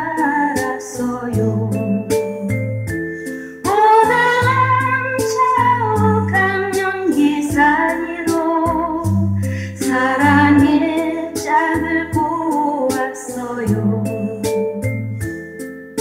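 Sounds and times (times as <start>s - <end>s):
woman singing: 0.0s - 2.7s, 3.6s - 14.9s
held bass notes: 1.0s - 12.6s, 13.4s - 15.4s.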